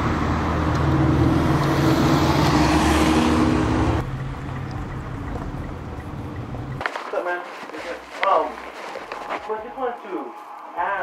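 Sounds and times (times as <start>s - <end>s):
street hum: 0.0s - 10.8s
road noise: 0.0s - 11.0s
vehicle engine running: 3.2s - 6.8s.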